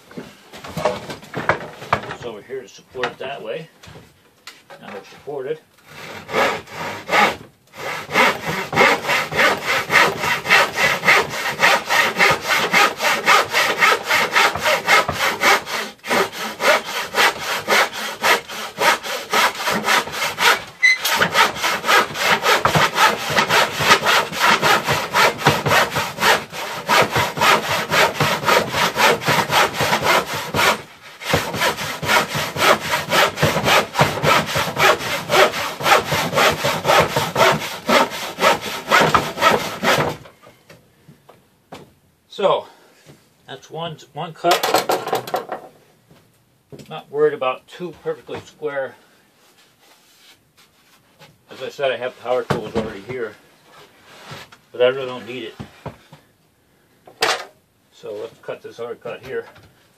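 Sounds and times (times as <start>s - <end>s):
handsaw cutting wood: 5.9s - 40.2s.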